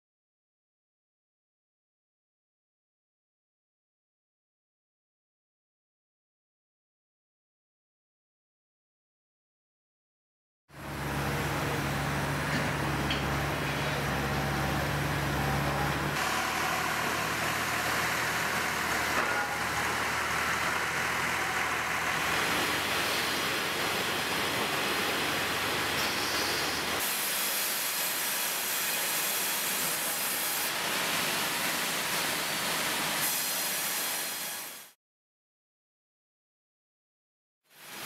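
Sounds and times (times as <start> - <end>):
sawmill machinery noise: 10.8 - 35.0.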